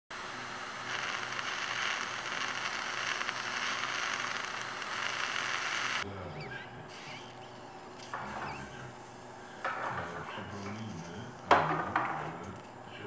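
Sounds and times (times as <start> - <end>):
dental suction hissing: 0.1 - 6.0, 6.9 - 7.3.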